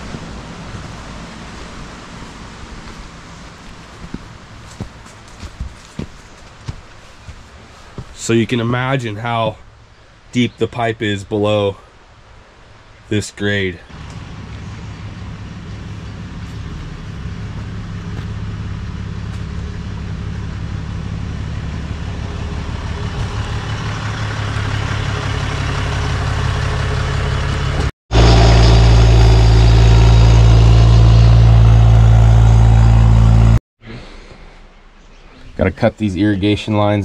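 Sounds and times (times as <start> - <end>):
pickup truck engine: 0.0 - 8.1, 13.9 - 33.6
excavator engine running: 0.0 - 8.2, 13.9 - 33.6.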